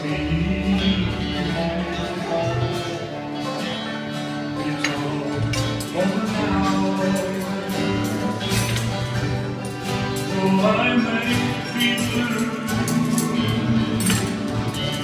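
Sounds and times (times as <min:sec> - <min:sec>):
live band with singing: 0:00.0 - 0:15.0.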